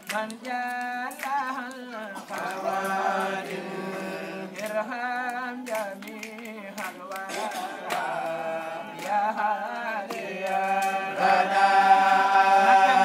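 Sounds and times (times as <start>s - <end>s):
chanted singing: 0.0s - 13.0s.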